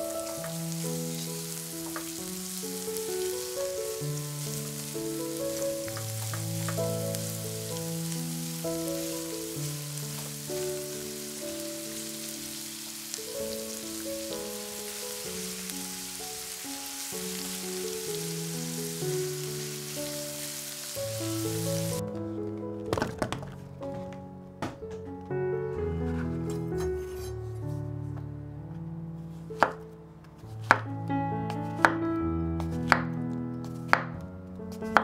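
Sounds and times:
food sizzling in oil: 0.0 - 22.0.

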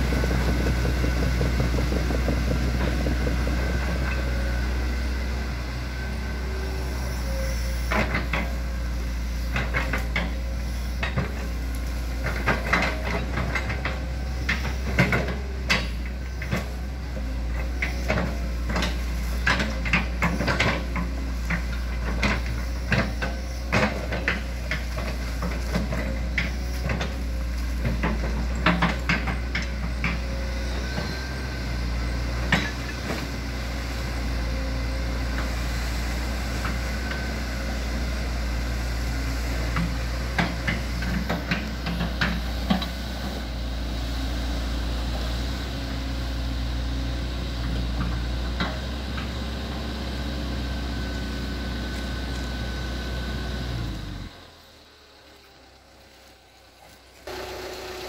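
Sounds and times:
excavator knocks and clanks: 0.0 - 54.6
excavator diesel engine running: 0.0 - 58.0.

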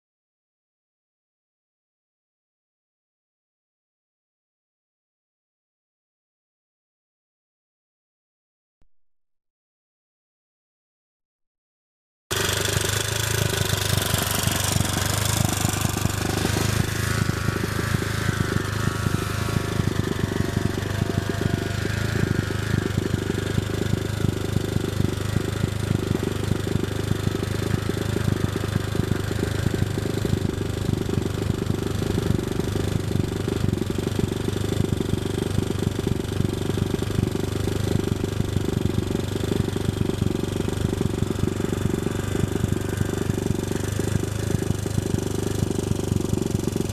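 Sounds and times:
atv engine running: 12.3 - 46.9.

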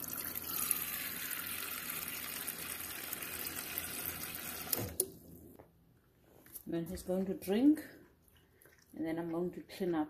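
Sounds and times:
water running into metal bowl: 0.0 - 5.0.

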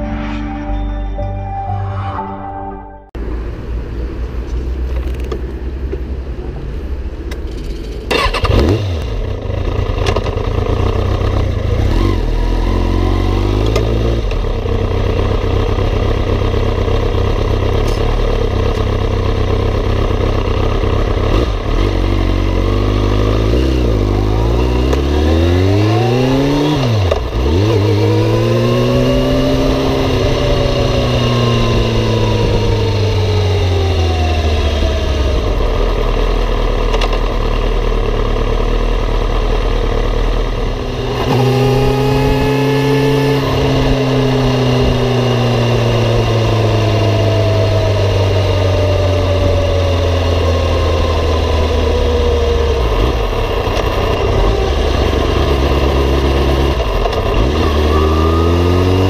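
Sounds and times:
motorcycle engine starting: 7.4 - 58.5
motorcycle engine revving under way: 7.6 - 59.0.

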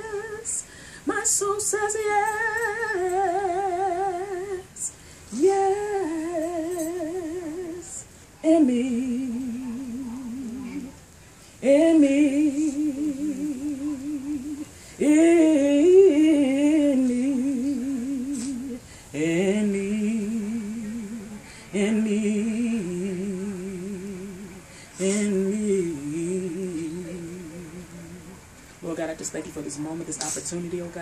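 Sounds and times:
woman singing gospel melody: 0.0 - 31.0
singer breathing: 0.6 - 1.1, 18.4 - 19.1, 21.4 - 21.7, 24.6 - 25.3.

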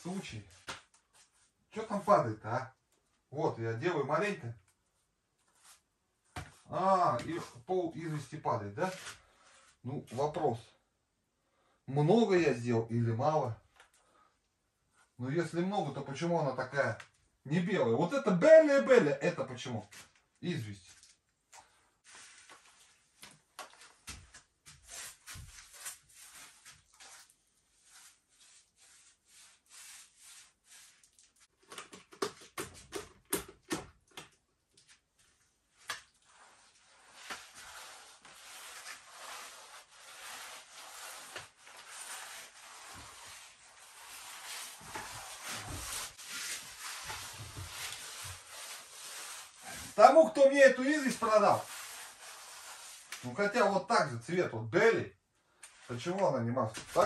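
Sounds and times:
paintbrush strokes: 24.7 - 31.5, 36.2 - 53.4.

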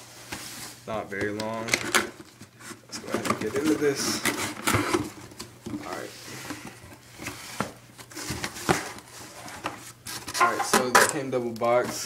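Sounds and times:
cardboard scraping and rustling: 2.6 - 10.8.

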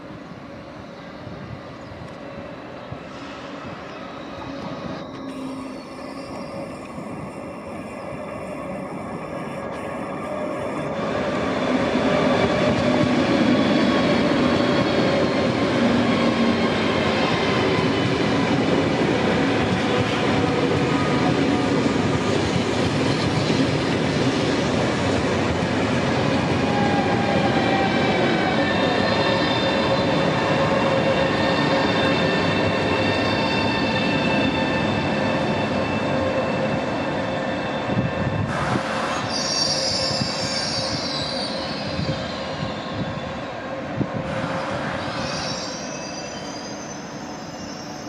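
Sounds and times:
train wheels rumbling on rail: 0.0 - 48.0.

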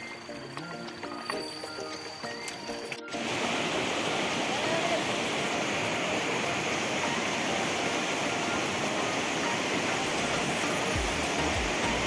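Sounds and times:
river rushing over rocks: 3.1 - 12.0.

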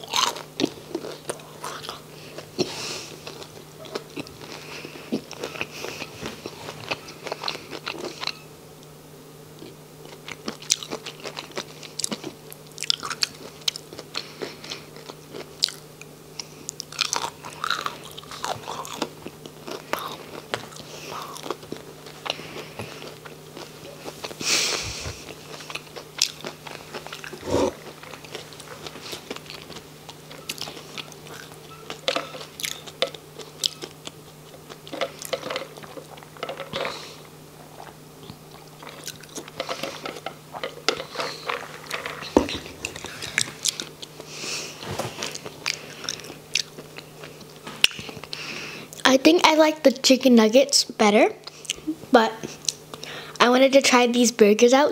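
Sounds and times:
chewing crunchy food: 0.0 - 8.5, 9.5 - 49.1
wet mouth sounds: 24.4 - 29.8.

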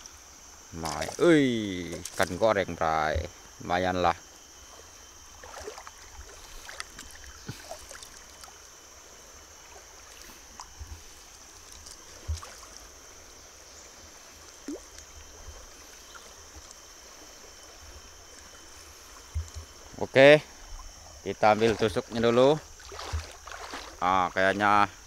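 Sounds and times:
high insect drone: 0.0 - 25.0
river water trickling: 0.0 - 25.0
net knocks and splashes: 0.8 - 1.3, 12.2 - 12.8, 22.8 - 24.0.

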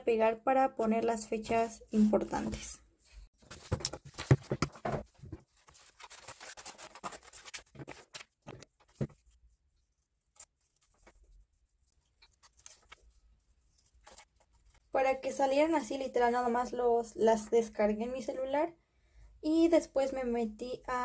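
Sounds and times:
paper rustling: 3.4 - 14.9.

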